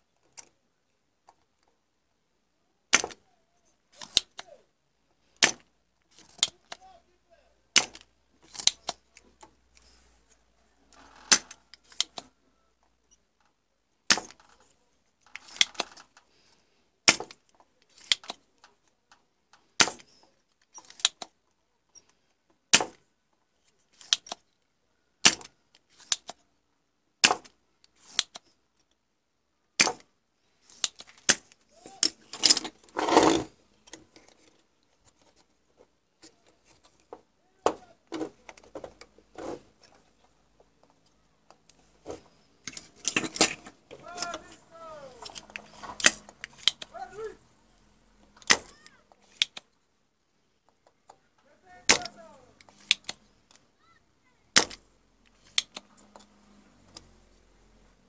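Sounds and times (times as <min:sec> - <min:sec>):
soft clicks and rubbing: 0:14.2 - 0:16.6, 0:30.5 - 0:49.9
rough scraping noise: 0:32.2 - 0:33.6, 0:39.2 - 0:40.1, 0:41.8 - 0:47.2.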